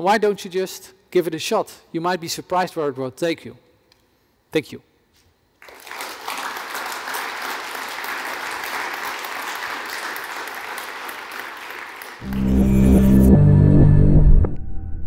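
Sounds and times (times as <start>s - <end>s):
audience applauding: 5.6s - 13.0s
loud music with strong bass: 12.3s - 14.6s.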